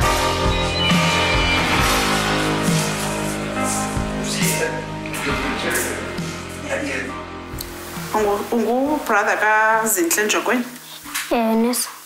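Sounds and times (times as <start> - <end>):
film music of held chords: 0.0 - 8.8.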